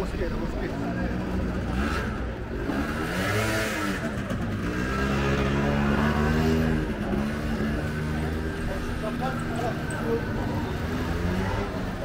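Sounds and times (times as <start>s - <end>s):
small motorbike engine revving: 1.3s - 12.0s.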